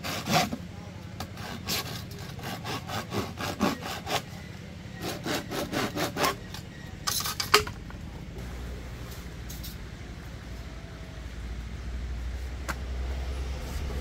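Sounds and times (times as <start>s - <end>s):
rhythmic scraping strokes: 1.3s - 7.2s.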